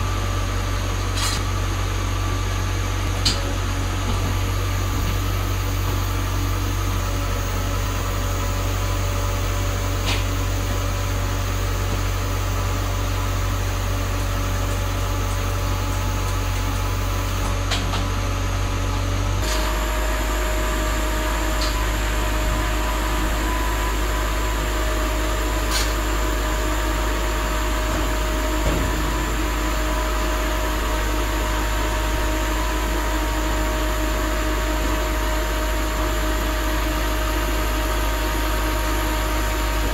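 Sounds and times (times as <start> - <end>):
machinery humming: 0.0 - 39.9.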